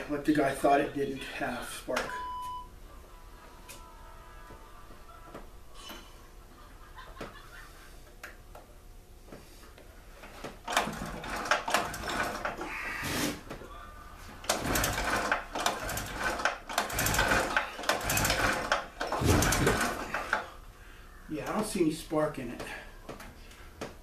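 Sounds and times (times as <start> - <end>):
recoil starter pulls on engine: 10.7 - 12.6, 14.4 - 20.4.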